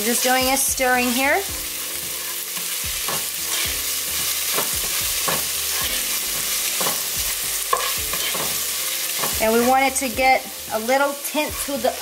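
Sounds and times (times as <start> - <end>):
onions sizzling in oil: 0.0 - 12.0
spatula scraping a pot: 2.1 - 9.7.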